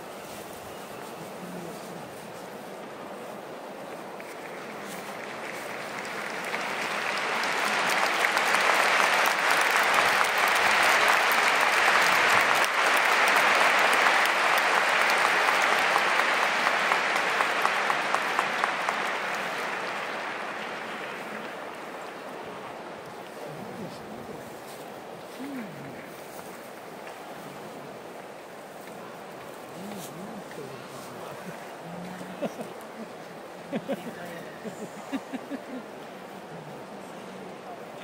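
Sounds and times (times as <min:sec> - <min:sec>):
crowd applauding: 0:04.1 - 0:23.6, 0:29.4 - 0:38.0.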